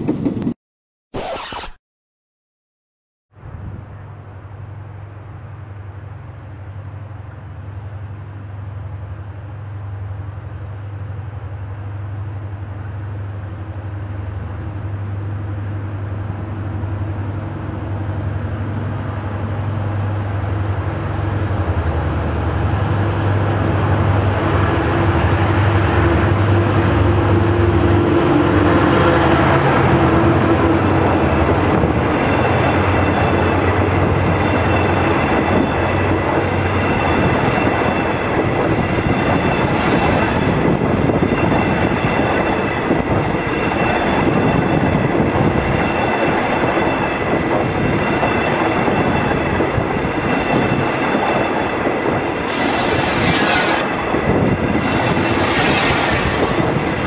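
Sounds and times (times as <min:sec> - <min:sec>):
diesel locomotive engine drone: 0:03.3 - 0:57.0
train wheels clattering on rails: 0:23.2 - 0:57.0
thin high whine: 0:52.4 - 0:57.0
short hissing bursts: 0:52.5 - 0:54.0, 0:54.8 - 0:56.7.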